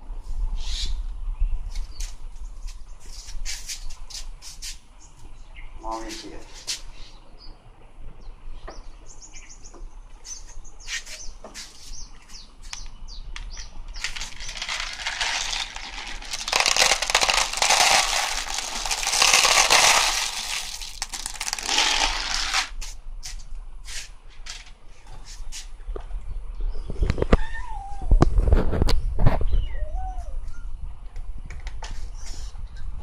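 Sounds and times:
kibble rattling and pouring: 14.0s - 22.8s.

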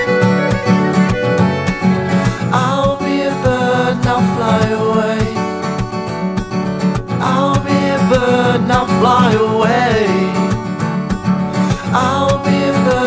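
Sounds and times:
wavering melody line: 0.0s - 2.5s
acoustic guitar strumming: 0.0s - 13.0s.

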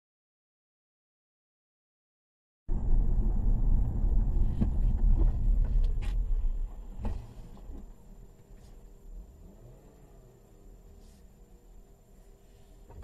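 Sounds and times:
car tyres and engine rumbling: 2.7s - 13.0s.

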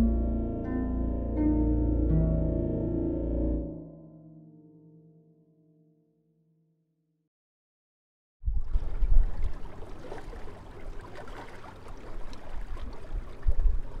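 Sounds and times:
wind rumble on microphone: 8.4s - 11.1s, 12.2s - 14.0s
small waves lapping: 8.5s - 14.0s.

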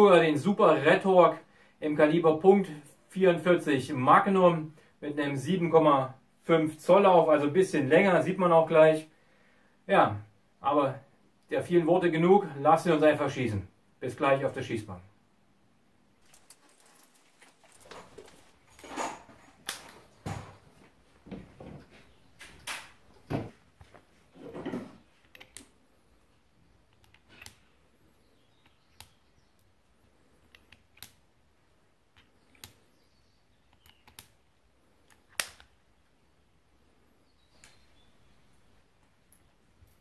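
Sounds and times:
revolver handling knocks and clatter: 16.3s - 25.2s.

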